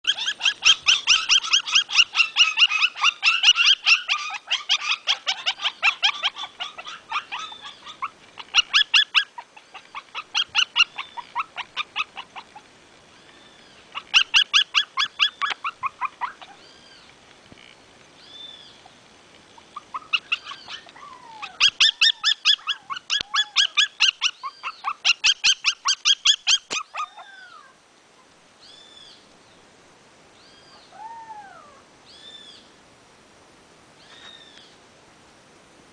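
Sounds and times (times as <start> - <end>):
puppies whining: 0.0 - 12.6, 14.0 - 17.0, 19.6 - 27.8
puppies yapping: 0.0 - 12.7, 13.9 - 16.7, 19.6 - 27.8.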